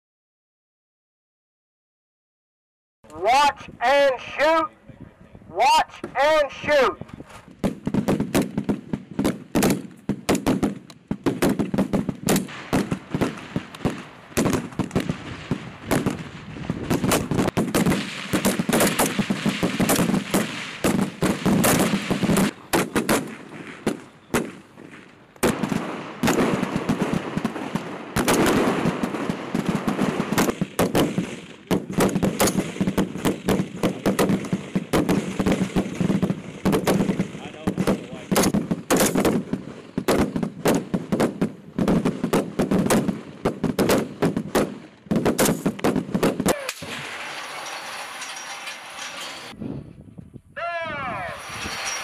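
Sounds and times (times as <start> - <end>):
rifle shots overlapping: 16.9 - 47.4.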